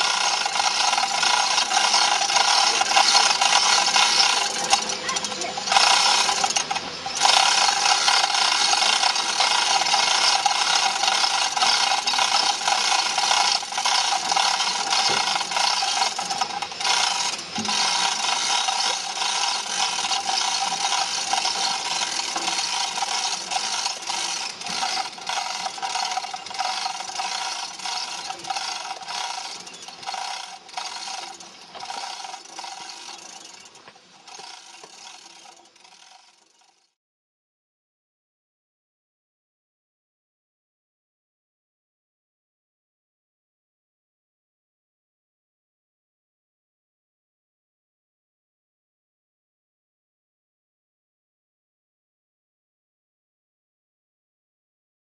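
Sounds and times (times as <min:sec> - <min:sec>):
sand mold scraping and rattling: 0:00.0 - 0:36.3.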